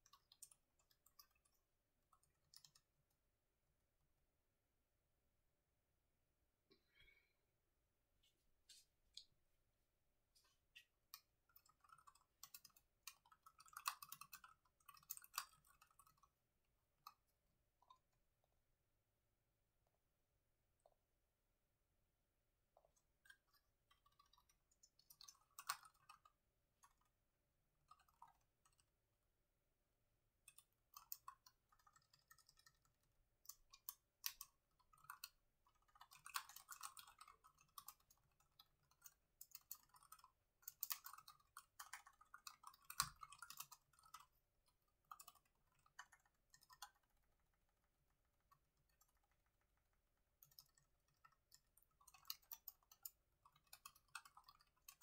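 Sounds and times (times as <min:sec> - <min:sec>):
laptop keyboard typing: 0:00.0 - 0:03.0, 0:10.4 - 0:18.1, 0:22.8 - 0:29.2, 0:30.3 - 0:55.0.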